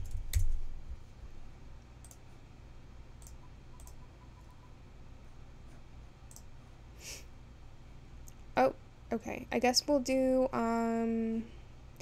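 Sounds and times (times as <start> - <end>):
computer mouse clicking: 0.0 - 0.6, 2.0 - 2.3, 3.2 - 4.6, 6.3 - 6.5
faint low hum: 0.0 - 12.0.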